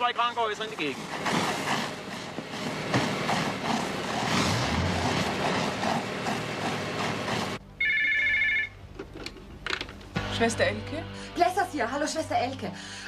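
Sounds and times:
fire hoses spraying: 0.0s - 7.6s.

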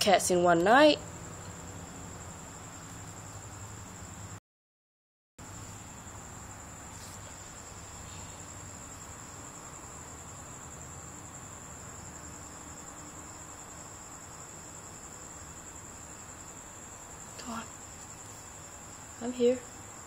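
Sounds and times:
low hiss: 5.4s - 20.0s.

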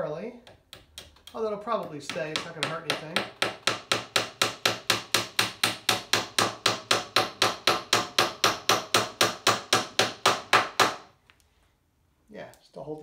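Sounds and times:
hammer tapping on wood: 0.4s - 11.0s.

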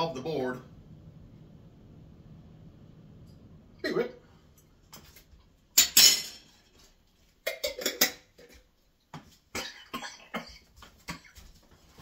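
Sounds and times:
man coughing: 9.5s - 11.5s.

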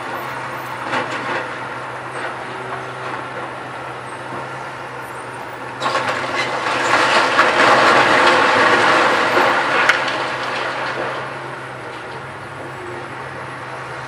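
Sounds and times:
excavator diesel engine running: 0.0s - 14.0s
concrete debris crashing down: 5.8s - 11.8s.

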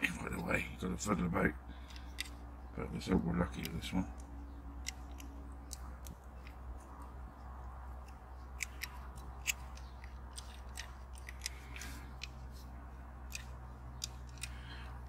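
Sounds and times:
toy car clicking in fingers: 3.6s - 15.0s.

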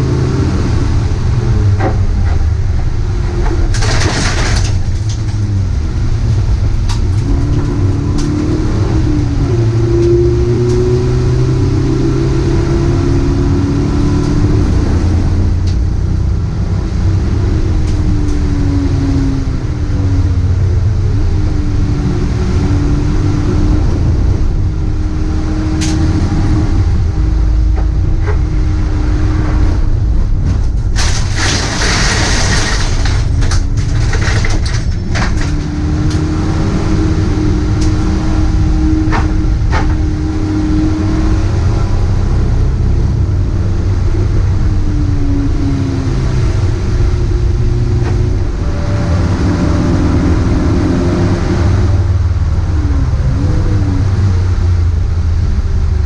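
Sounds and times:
heavy low rumble: 0.0s - 56.0s
race car engine revving: 0.0s - 56.0s.

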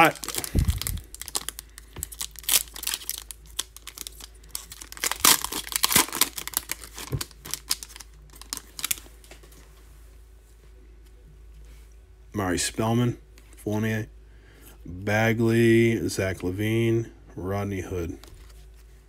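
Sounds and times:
foil wrapper crinkling and tearing: 0.0s - 9.1s.

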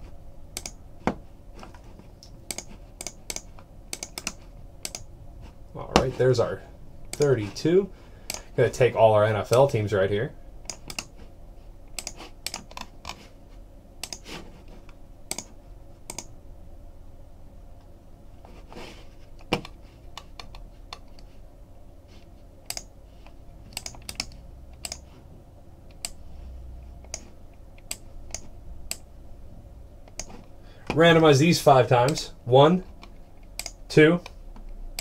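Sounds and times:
mouse clicking: 0.6s - 0.8s, 2.2s - 5.1s, 10.6s - 11.1s, 11.9s - 13.2s, 14.0s - 14.3s, 15.3s - 15.5s, 16.1s - 16.3s, 22.7s - 22.9s, 23.7s - 25.1s, 27.0s - 29.1s, 30.1s - 30.3s, 33.0s - 33.8s
keyboard keystrokes: 2.5s - 5.0s, 10.7s - 11.1s, 16.1s - 16.3s, 23.7s - 25.0s.

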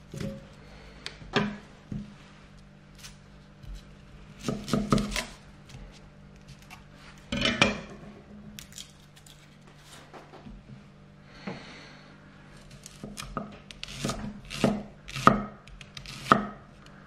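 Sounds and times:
knife chopping on wooden board: 4.4s - 5.3s, 12.9s - 16.6s.

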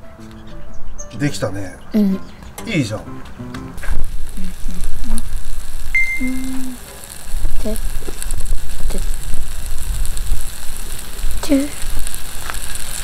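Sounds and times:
meat sizzling on griddle: 3.8s - 13.0s.

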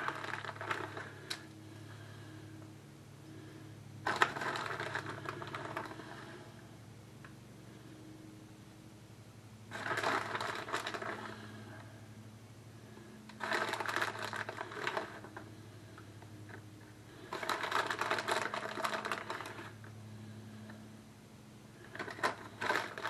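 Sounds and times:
crinkly rustling of shredded cheese: 0.0s - 1.4s, 4.1s - 6.4s, 9.7s - 11.9s, 13.0s - 19.9s, 21.8s - 23.0s.

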